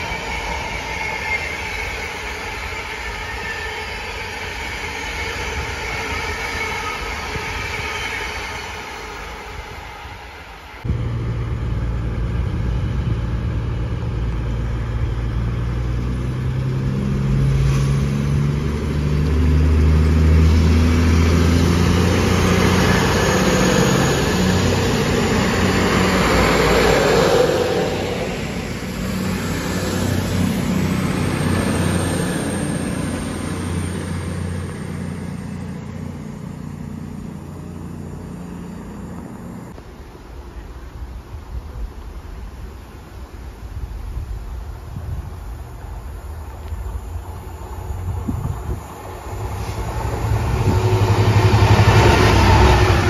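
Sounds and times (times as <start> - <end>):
diesel train passing: 0.0 - 53.0
rush of wheels and air: 0.0 - 53.0.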